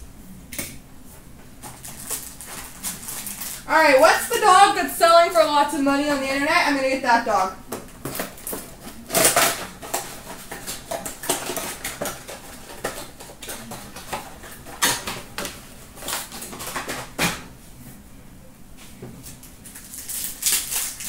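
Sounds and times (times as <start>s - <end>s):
foil wrappers crinkling: 1.6s - 4.6s, 7.8s - 17.3s, 19.2s - 21.0s.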